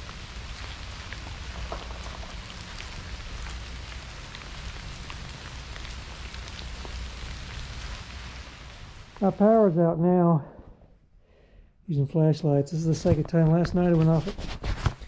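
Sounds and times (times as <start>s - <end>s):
low steady rumble: 0.0s - 10.5s
freezing rain pattering: 0.0s - 10.6s, 12.0s - 14.9s.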